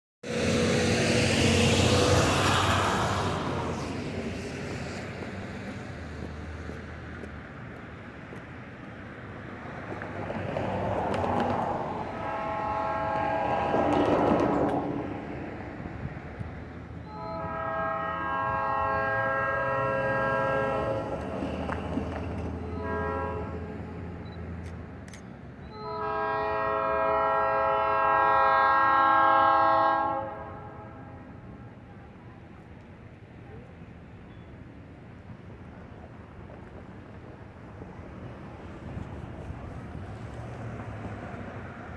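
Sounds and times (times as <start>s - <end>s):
car passing: 0.2s - 24.8s, 36.6s - 41.9s
faint low train rumble: 0.2s - 41.9s
train horn: 11.7s - 15.3s, 17.0s - 21.6s, 22.6s - 24.2s, 25.6s - 31.4s.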